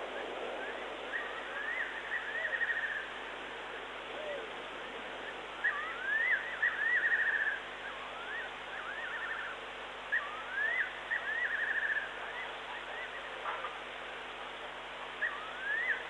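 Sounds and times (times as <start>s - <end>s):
steady background hiss: 0.0s - 16.0s
bird whistling with quavering trill: 5.6s - 9.5s, 10.1s - 13.4s, 15.2s - 16.0s.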